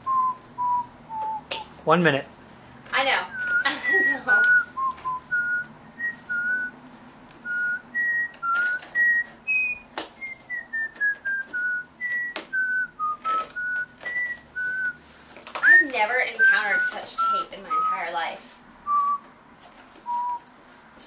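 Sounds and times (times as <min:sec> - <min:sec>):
person whistling a tune: 0:00.0 - 0:01.7, 0:03.3 - 0:06.8, 0:07.4 - 0:15.0, 0:15.6 - 0:18.2, 0:18.8 - 0:19.2, 0:20.0 - 0:20.4.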